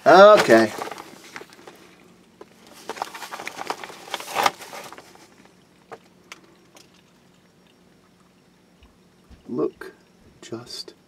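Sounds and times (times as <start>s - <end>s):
person crawling over debris: 0.1s - 1.8s.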